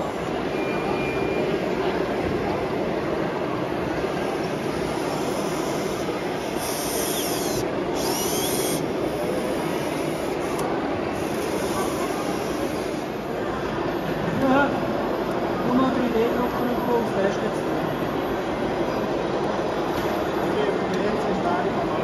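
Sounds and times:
model machines mechanical din: 4.2 - 13.2.

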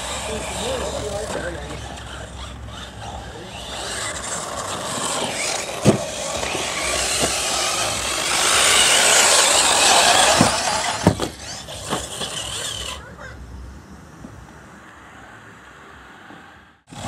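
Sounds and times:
rc car motor whine: 0.0 - 13.3
sharp knocks: 10.2 - 12.2.

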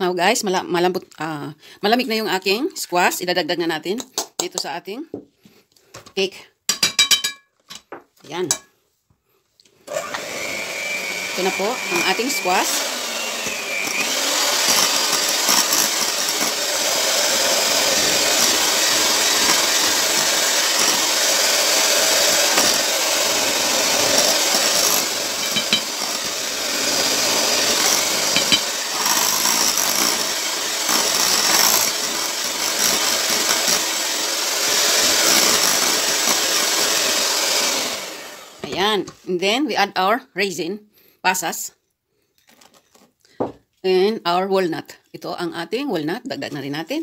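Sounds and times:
electric hand mixer whirring: 9.9 - 38.9.

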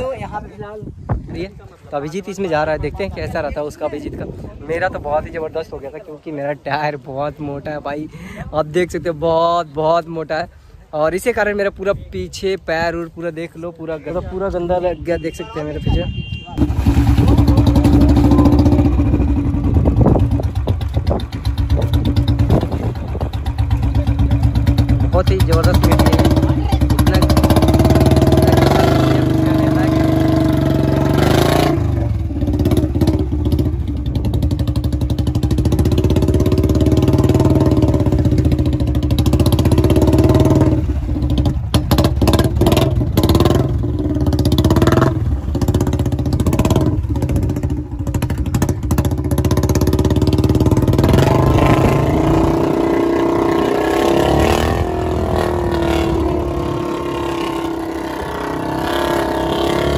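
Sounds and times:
motorcycle engine revving: 16.6 - 59.9.

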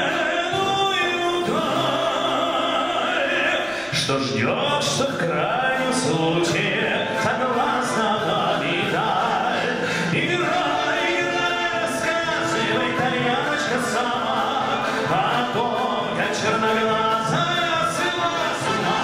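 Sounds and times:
man singing: 0.0 - 19.0
military brass band playing: 5.3 - 19.0.

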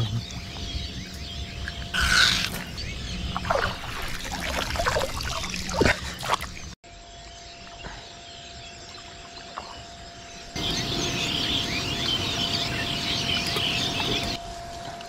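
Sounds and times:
many birds chattering: 0.0 - 6.8, 10.4 - 14.4
open water ambience: 0.0 - 15.0.

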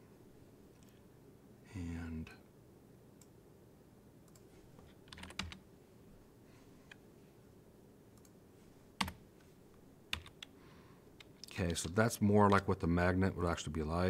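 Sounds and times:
computer keyboard keystrokes: 5.0 - 5.6, 10.1 - 10.5.

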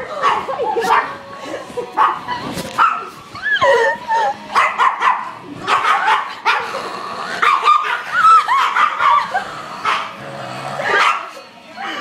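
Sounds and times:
small dog barking and yipping: 4.6 - 6.6, 7.4 - 9.2.

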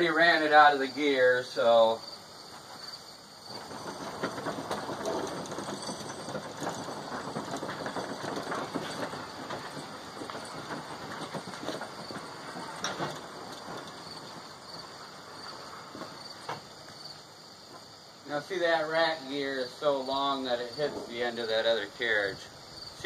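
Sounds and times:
sawmill carriage rolling on steel track: 3.4 - 17.2, 18.3 - 23.0.

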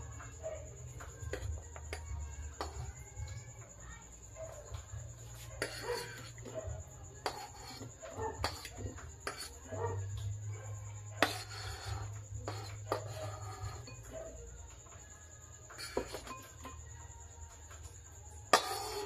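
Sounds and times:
vegetables scraped into ceramic bowl: 5.4 - 6.6, 7.2 - 9.8, 11.2 - 14.1, 15.7 - 16.8, 18.5 - 19.0.

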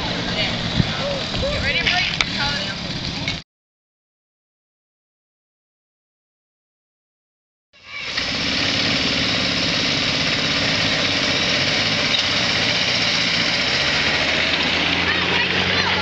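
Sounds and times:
small gasoline engine running: 7.8 - 16.0.

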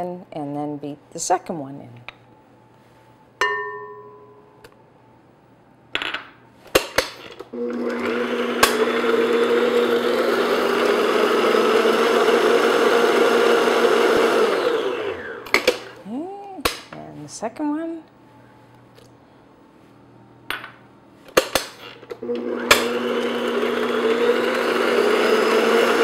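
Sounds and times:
ringing clink: 3.4 - 4.6
stand mixer running: 7.6 - 15.9, 22.2 - 26.0.

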